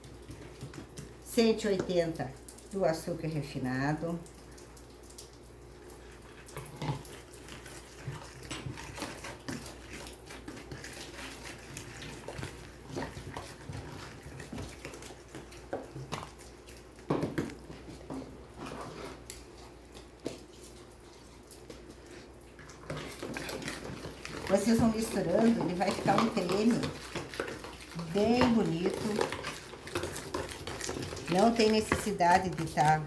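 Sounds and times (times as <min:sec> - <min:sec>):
metal spoon scraping plastic bowl: 0:22.9 - 0:33.0.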